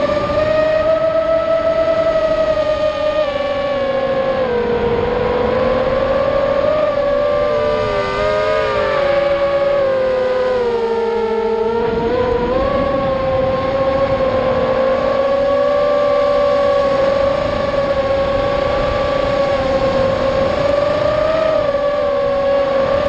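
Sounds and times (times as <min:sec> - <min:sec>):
quadcopter motors whining: 0:00.0 - 0:23.0.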